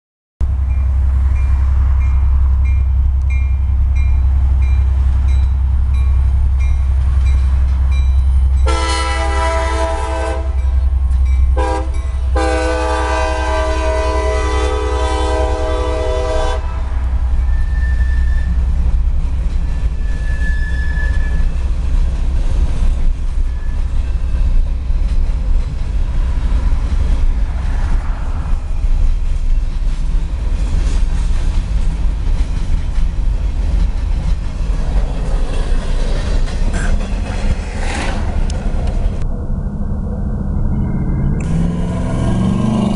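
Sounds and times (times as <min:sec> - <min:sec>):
locomotive air horn blasts: 0:08.6 - 0:10.8, 0:11.5 - 0:18.6.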